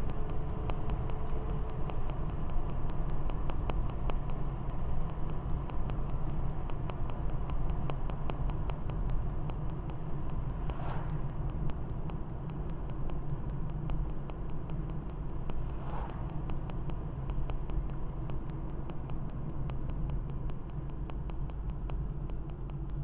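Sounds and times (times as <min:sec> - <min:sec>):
road and engine rumble: 0:00.0 - 0:23.0
faint clicks: 0:00.1 - 0:23.0.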